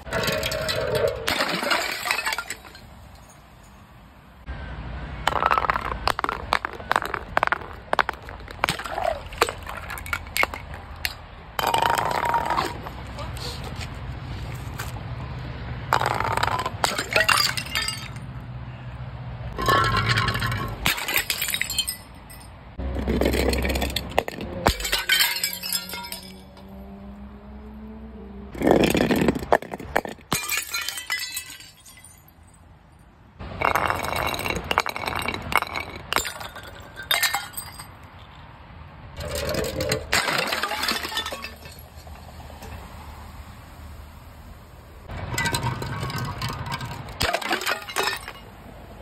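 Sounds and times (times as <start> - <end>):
glass bottles smashing: 0.1 - 3.9, 5.3 - 12.7, 16.0 - 18.2, 19.6 - 26.6, 28.6 - 32.5, 33.5 - 38.0, 39.2 - 42.3, 45.3 - 48.6
glass shards tinkling: 1.3 - 3.9, 24.7 - 26.6.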